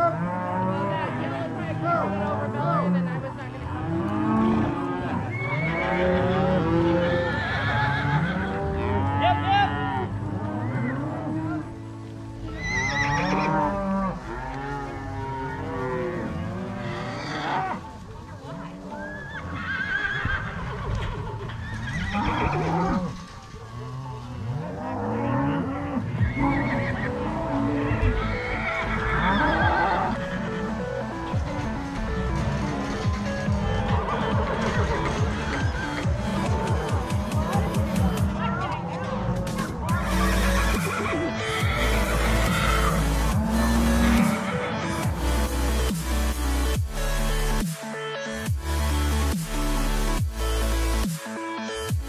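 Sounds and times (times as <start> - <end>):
cattle mooing and bawling: 0.0 - 46.0
music: 0.0 - 52.0
higher-pitched cattle calls: 12.4 - 23.2, 38.3 - 45.4.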